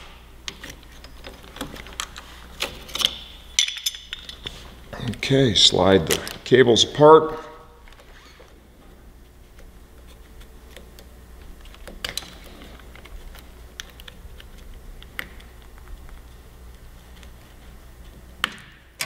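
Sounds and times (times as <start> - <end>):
clicks of parts handled by hand: 0.5 - 4.5.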